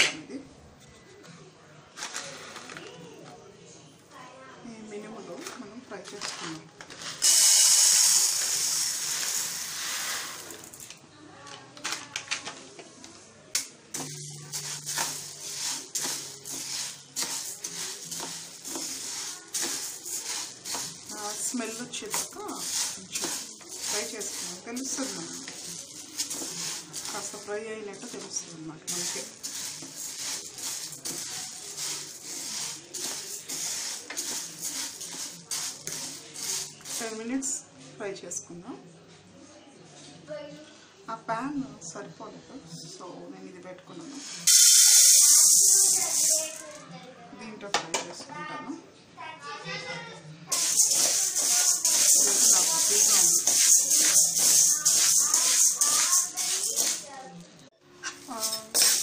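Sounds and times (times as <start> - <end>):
spatula stirring rattling grains: 6.2 - 10.9, 13.9 - 37.6, 44.2 - 46.8, 50.5 - 57.4, 58.2 - 59.0
grains poured into pan: 7.0 - 10.9, 14.0 - 37.5, 44.2 - 46.8, 50.5 - 57.1, 58.3 - 59.0.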